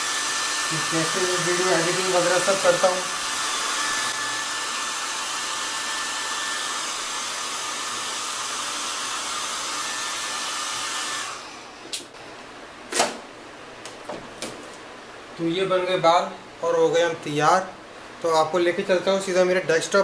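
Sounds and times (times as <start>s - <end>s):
hair dryer blowing: 0.0s - 12.2s.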